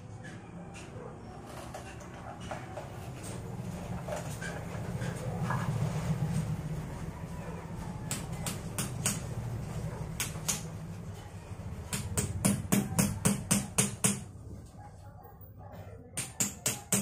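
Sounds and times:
hammer tapping on concrete: 8.0 - 9.4, 10.2 - 10.8, 11.8 - 14.3, 16.2 - 17.0.

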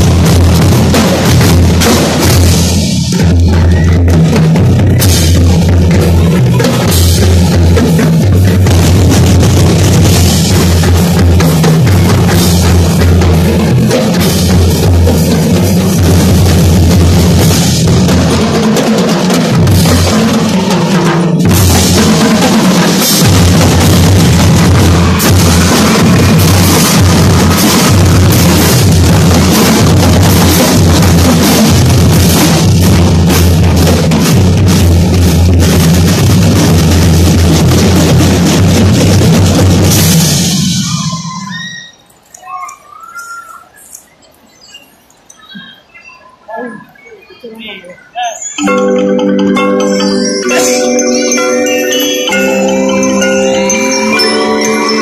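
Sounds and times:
bass drums: 0.0 - 41.0
snare drums: 0.0 - 43.9
keyboard percussion: 0.0 - 55.0.

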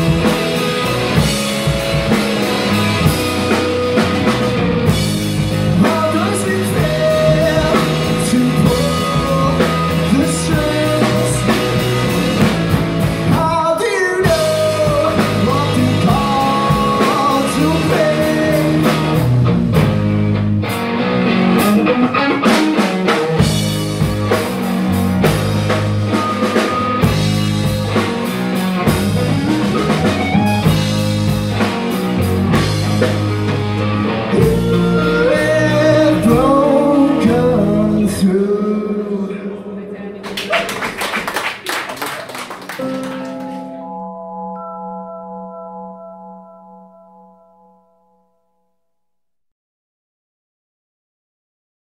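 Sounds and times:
drum kit: 0.0 - 38.1
bass guitar: 0.0 - 39.7
electric guitar: 0.0 - 40.5, 42.5 - 44.8.

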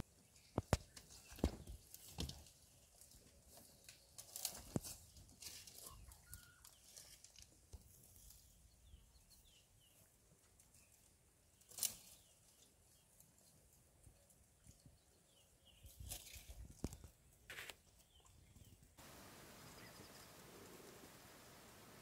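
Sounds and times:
branches cracking and rustling: 0.4 - 8.5, 11.6 - 12.6, 15.9 - 17.7.

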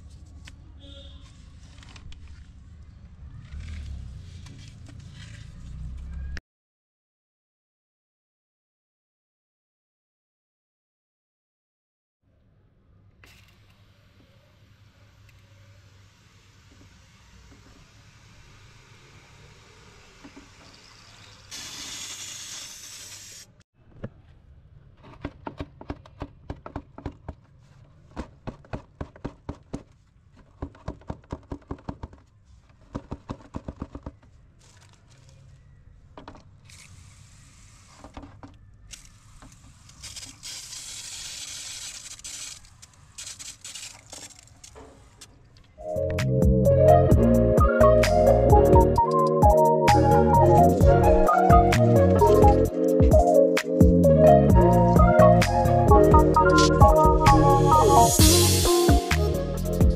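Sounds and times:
sand and stone pouring hiss: 16.1 - 23.6, 36.7 - 38.1, 39.0 - 44.5, 58.2 - 59.1.

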